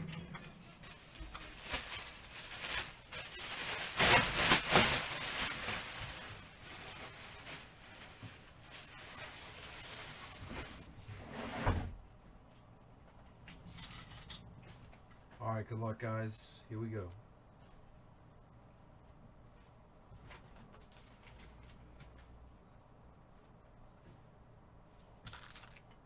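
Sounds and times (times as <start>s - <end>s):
rustling of things handled: 0.0s - 11.1s, 12.4s - 15.5s, 17.0s - 22.7s.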